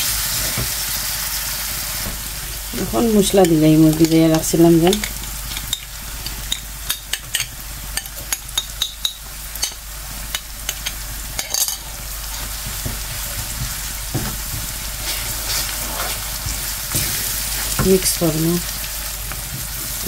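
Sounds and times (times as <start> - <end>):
oil sizzling in a pan: 0.0 - 20.0
wooden spoon stirring: 10.7 - 18.3.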